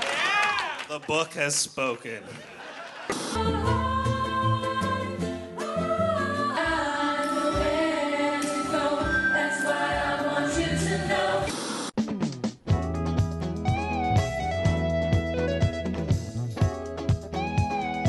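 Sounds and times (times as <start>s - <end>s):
group of voices singing: 3.3s - 11.8s.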